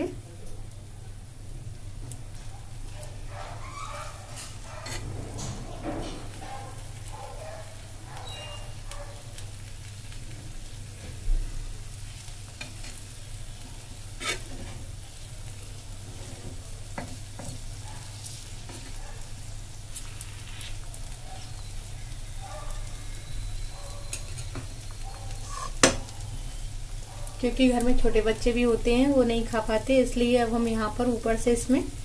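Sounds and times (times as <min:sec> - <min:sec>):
batter sizzling in oil: 0:00.0 - 0:32.0
spatula scraping pan: 0:03.6 - 0:07.1, 0:12.1 - 0:15.3, 0:25.3 - 0:26.0.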